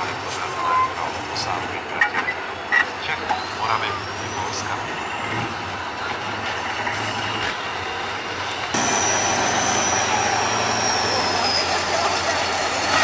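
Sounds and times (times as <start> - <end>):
truck engine running: 0.0 - 13.0
high whine rising in pitch: 8.7 - 13.0.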